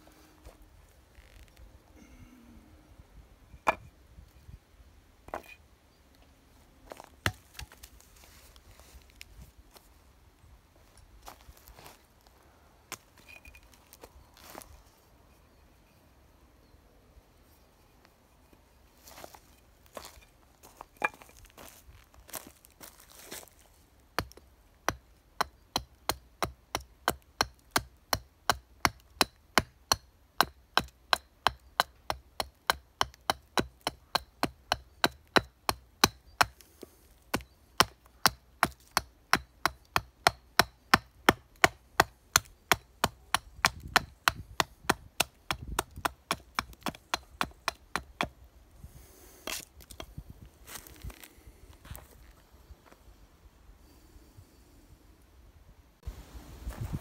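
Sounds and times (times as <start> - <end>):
hatchet chopping wood: 7.2 - 7.8, 24.2 - 36.6, 37.3 - 48.4.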